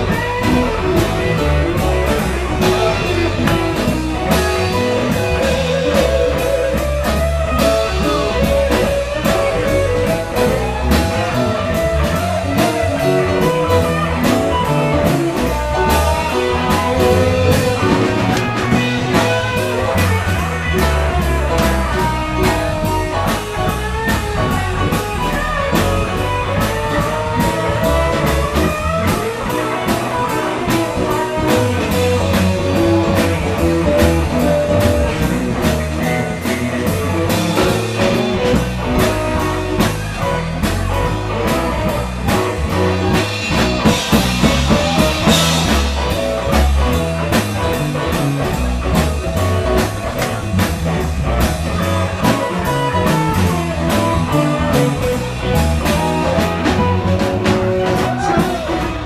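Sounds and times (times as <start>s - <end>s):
drums keeping steady beat: 0.0s - 59.0s
electric guitar lines: 0.0s - 59.0s
live rock band playing: 0.0s - 59.0s.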